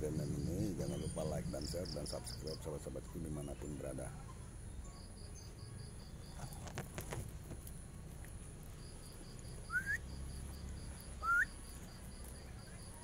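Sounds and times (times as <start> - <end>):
crickets chirping: 0.0 - 13.0
high insect hum: 0.0 - 13.0
rising bird whistle: 9.6 - 10.1, 11.2 - 11.6.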